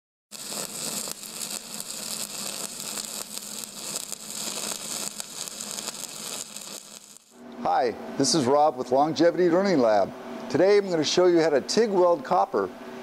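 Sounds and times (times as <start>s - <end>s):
crackling hiss: 0.3s - 7.4s.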